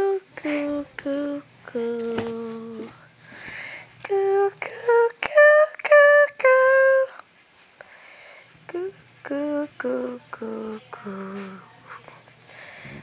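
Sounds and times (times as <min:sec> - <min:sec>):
woman singing lullaby-like tune: 0:00.0 - 0:03.0, 0:04.0 - 0:07.2, 0:08.7 - 0:12.2.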